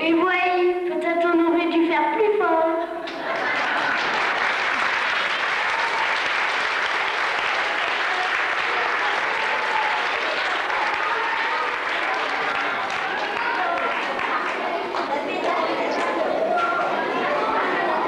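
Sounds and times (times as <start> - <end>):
audience applauding: 3.1 - 18.0
voices: 6.9 - 18.0.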